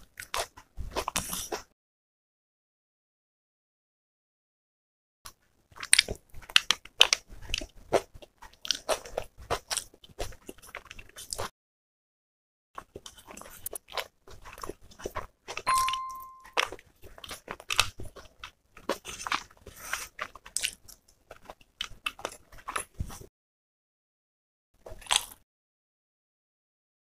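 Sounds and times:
chewing crisp food: 0.0 - 1.7, 5.3 - 11.5, 12.8 - 23.3, 24.8 - 25.4
bell-like chime: 15.7 - 16.6.

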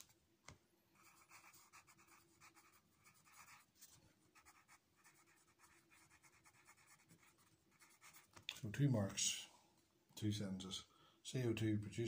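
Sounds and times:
pencil writing on paper: 1.0 - 3.7, 4.3 - 8.3.

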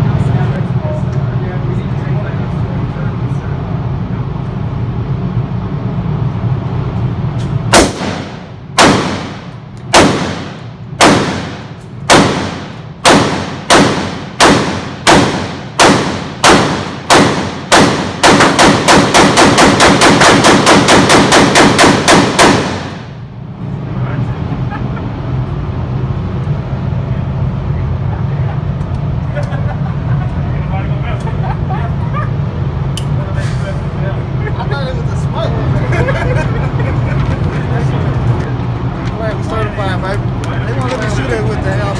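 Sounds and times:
rapid gunfire: 7.7 - 23.2
rifle shots echoing indoors: 7.7 - 23.2.

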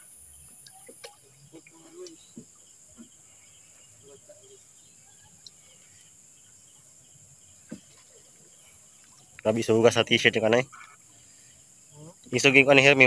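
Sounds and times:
night insects chorus: 0.0 - 13.0
soft knocks: 7.7 - 8.0.

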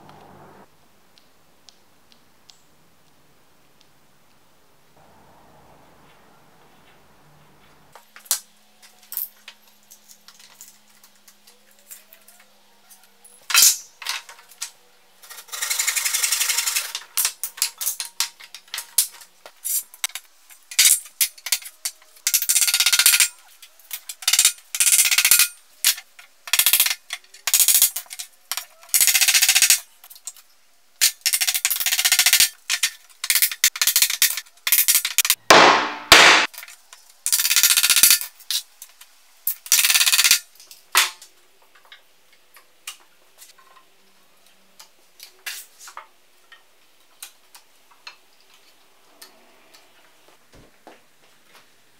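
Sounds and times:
hammer driving nails: 35.5 - 36.5.

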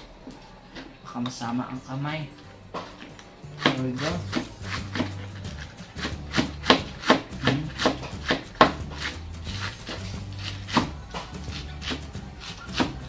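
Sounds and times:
knife slicing on cutting board: 3.6 - 13.0.

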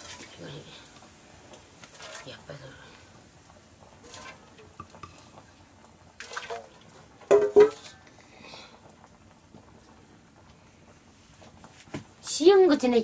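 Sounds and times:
ladle pouring liquid in pot: 3.6 - 8.0.

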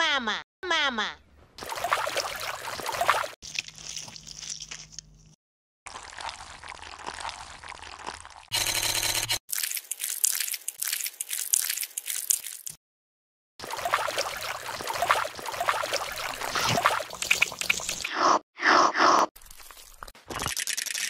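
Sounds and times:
wet chewing crunches: 3.0 - 8.5, 9.5 - 12.8
buzzing sound effect: 8.5 - 9.4.

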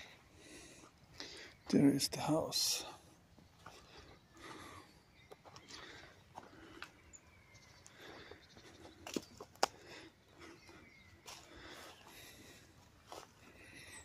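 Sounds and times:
footsteps through dry grass: 3.0 - 7.2, 7.8 - 14.0
twigs cracking underfoot: 8.8 - 10.0.

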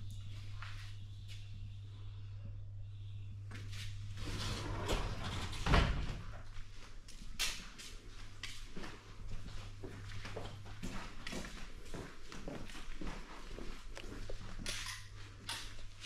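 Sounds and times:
low hum: 0.0 - 7.0
footsteps on stone tiles: 7.0 - 14.7.

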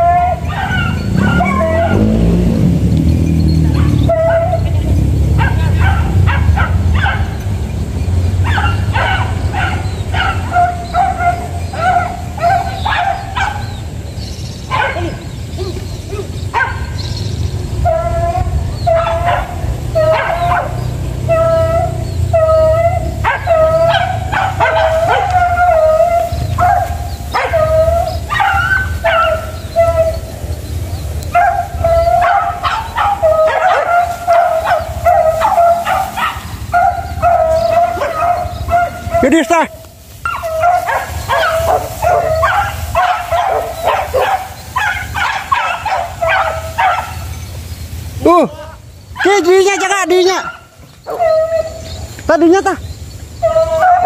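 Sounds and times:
dogs baying and yelping: 0.0 - 54.0.

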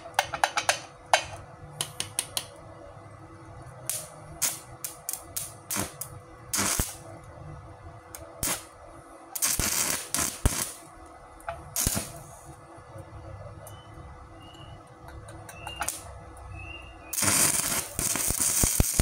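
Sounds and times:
welding arc crackling and popping: 3.8 - 7.1, 8.1 - 12.4, 15.7 - 19.0.

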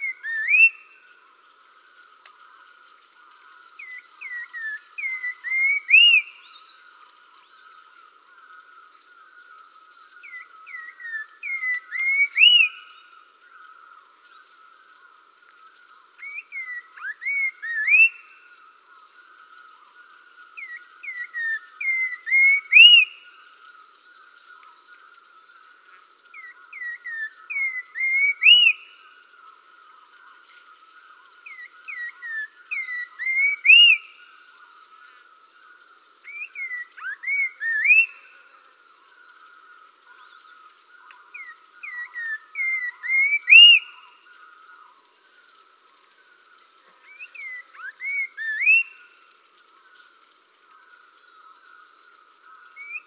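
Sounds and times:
bird whistling phrase: 0.0 - 0.9, 36.3 - 38.3, 41.4 - 44.1, 47.1 - 49.0.

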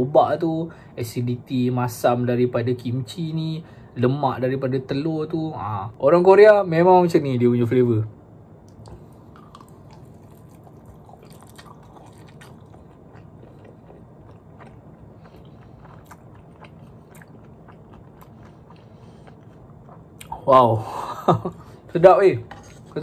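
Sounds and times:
man chewing food: 8.7 - 20.5.

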